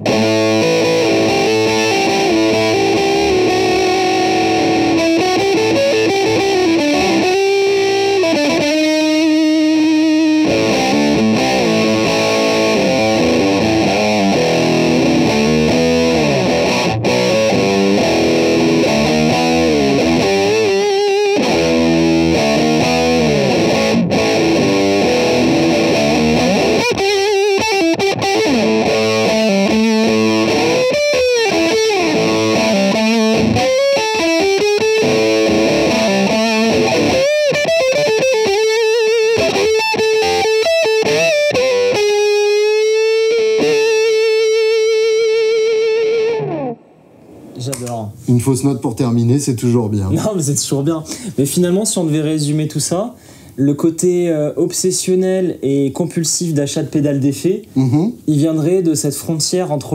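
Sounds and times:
distorted electric guitar lead: 0.0 - 47.8.

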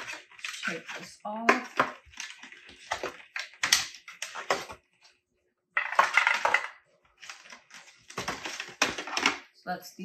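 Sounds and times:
rustling of cables: 5.8 - 9.4.

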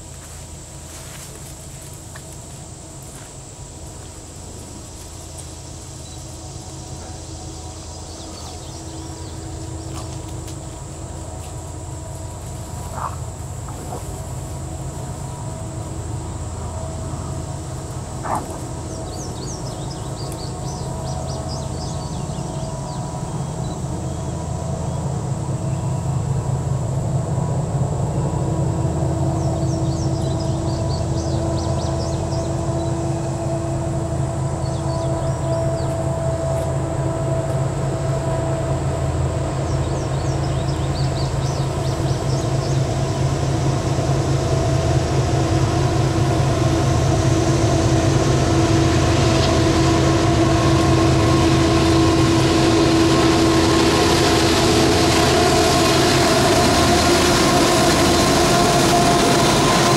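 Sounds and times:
diesel locomotive engine drone: 0.0 - 59.9
insects buzzing: 0.0 - 59.9
birds chirping: 6.0 - 10.4, 12.6 - 14.2, 18.0 - 24.3.

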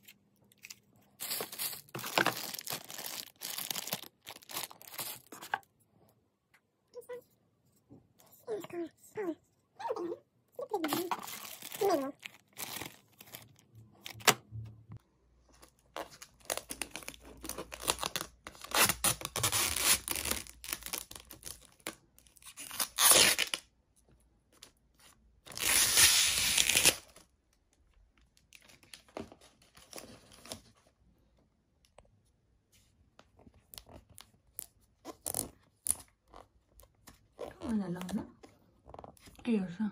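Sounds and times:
plastic bag crinkling and tearing: 0.5 - 5.4, 10.9 - 14.2.

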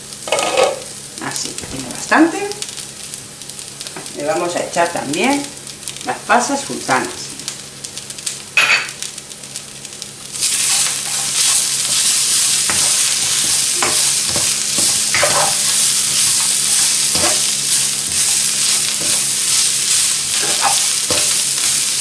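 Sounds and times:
vegetables sizzling in a wok: 0.0 - 22.0
spatula scraping and knocking pan: 10.4 - 22.0.

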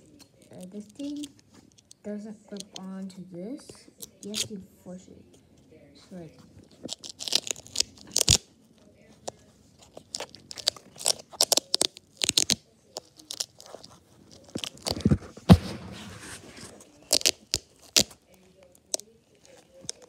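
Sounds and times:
velcro crackling: 6.6 - 8.5, 9.2 - 20.0.

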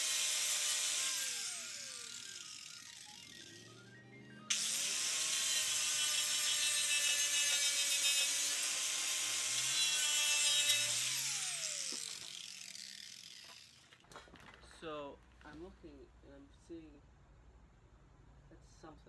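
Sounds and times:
angle grinder sanding steel: 0.0 - 3.7, 4.5 - 13.8
grinder disc spinning down: 0.0 - 13.8.

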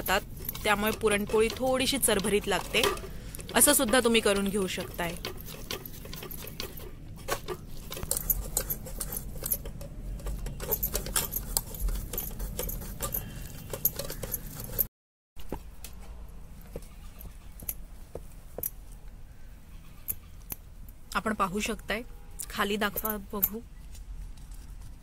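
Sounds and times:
steel bowl scraping on mesh sieve: 0.0 - 14.9.

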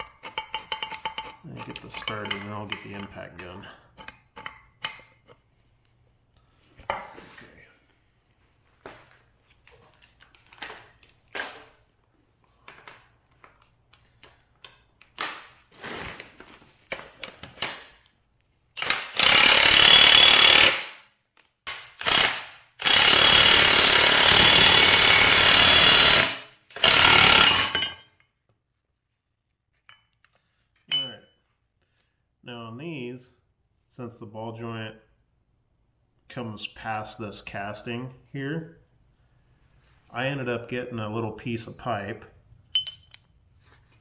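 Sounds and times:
metal parts clicking and knocking: 0.0 - 5.3, 42.7 - 43.3
impact wrench hammering: 18.8 - 21.0, 21.7 - 28.1, 42.8 - 43.2.

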